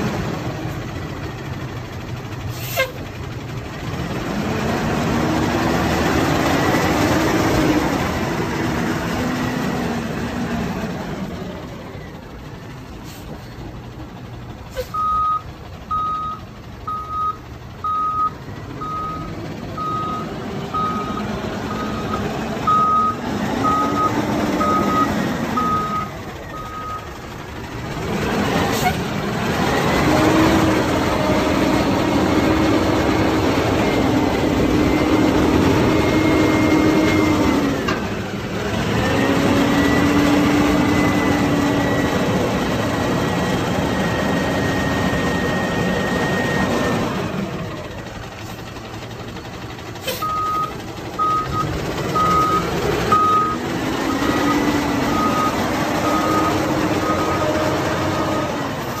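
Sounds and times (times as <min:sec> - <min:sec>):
diesel engine revving: 0:00.0 - 0:59.0
reversing alarm beeping: 0:14.9 - 0:27.2, 0:50.2 - 0:58.5.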